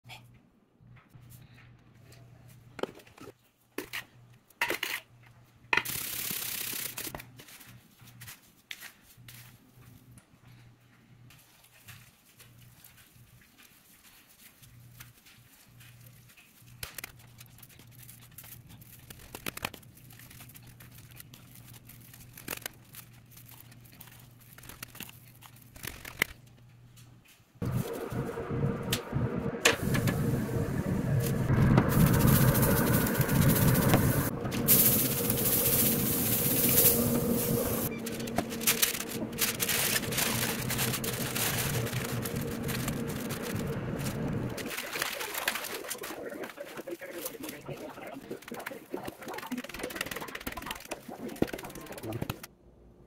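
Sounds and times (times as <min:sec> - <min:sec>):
hands rustling and rubbing meat: 0:06.2 - 0:26.3, 0:34.6 - 0:52.5
low steady hum: 0:26.4 - 0:44.8.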